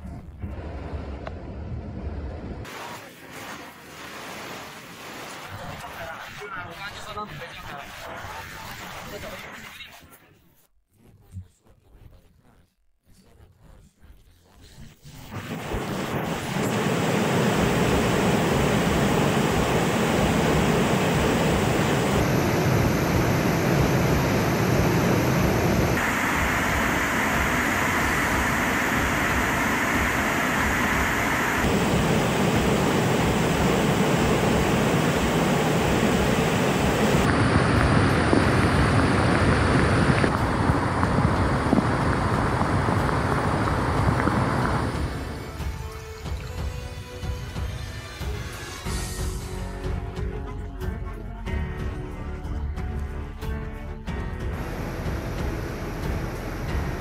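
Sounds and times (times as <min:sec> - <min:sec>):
heavy rainstorm rushing: 0:15.6 - 0:45.9
floodwater rushing: 0:28.3 - 0:45.4.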